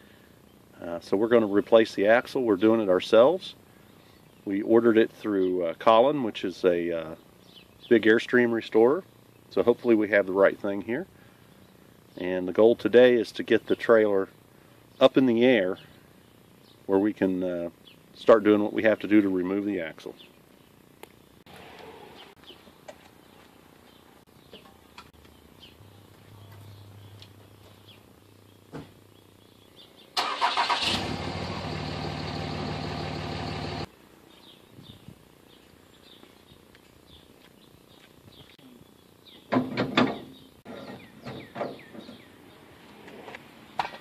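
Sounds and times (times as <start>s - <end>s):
truck engine cranking and idling: 30.2s - 33.9s.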